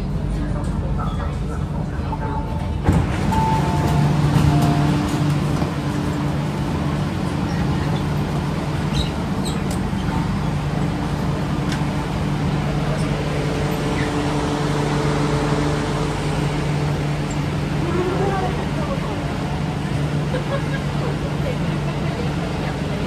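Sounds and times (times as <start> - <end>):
rail running rumble: 0.0 - 23.0
electric train motor hum: 1.6 - 23.0
higher hum tone: 2.1 - 7.6.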